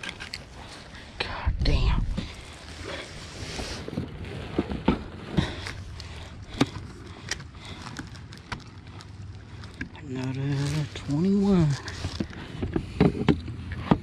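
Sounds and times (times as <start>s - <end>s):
clicks and knocks on kayak deck: 12.6s - 14.0s.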